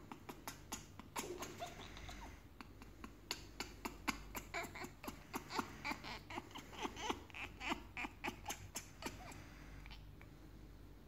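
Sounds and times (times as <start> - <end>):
parrot soft squeaks: 0.2 - 2.4.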